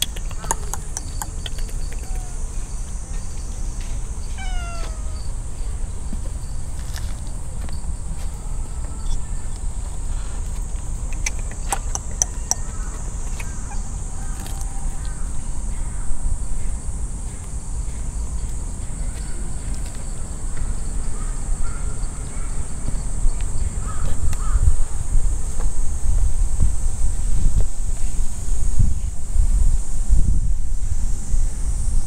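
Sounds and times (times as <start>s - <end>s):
sharp ticks: 0.0s - 2.5s, 10.8s - 13.7s
high insect drone: 0.0s - 32.0s
wind rumble on microphone: 0.0s - 32.0s
distant crow caws: 4.3s - 5.3s, 12.3s - 16.7s, 20.6s - 22.7s, 23.8s - 24.8s.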